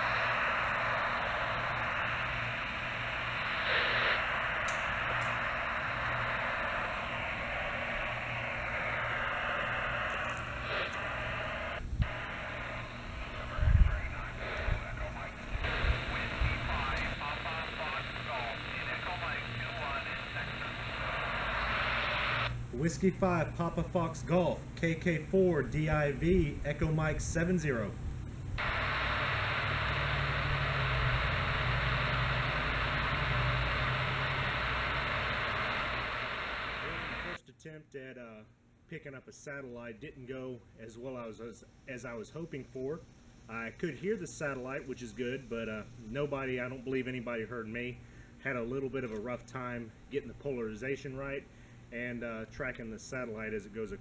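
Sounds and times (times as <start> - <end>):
low hum: 0.0 - 37.4
radio receiver hiss: 0.0 - 37.4.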